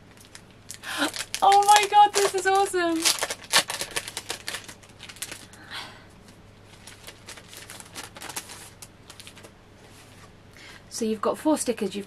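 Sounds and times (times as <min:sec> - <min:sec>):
paper sheets rustling: 0:01.1 - 0:05.5, 0:06.7 - 0:10.3.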